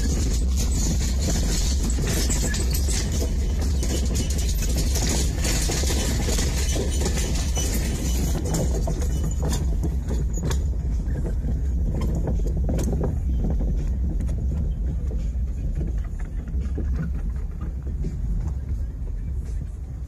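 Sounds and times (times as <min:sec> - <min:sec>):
wooden planks clattering: 0:00.0 - 0:18.6
low engine drone: 0:08.4 - 0:20.0.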